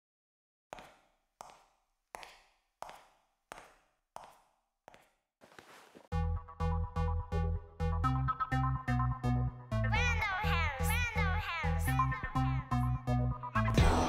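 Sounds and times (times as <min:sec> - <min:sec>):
high-heel footsteps clicking: 0:00.7 - 0:06.1
electronic music with heavy bass: 0:06.1 - 0:14.0.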